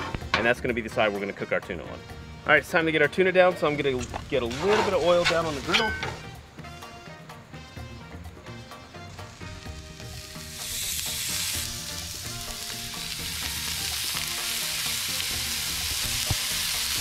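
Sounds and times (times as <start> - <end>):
fish searing on a griddle: 8.9 - 17.0.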